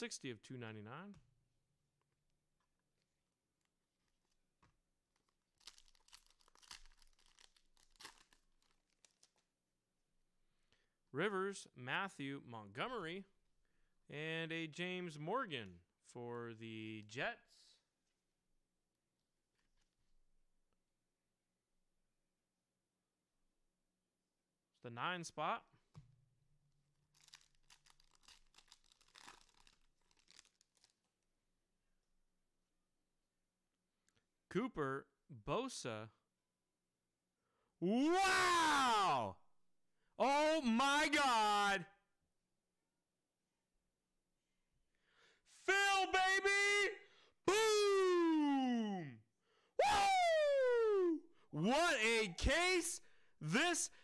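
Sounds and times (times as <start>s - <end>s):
card pack wrapper tearing: 5.1s - 9.5s, 27.1s - 31.1s.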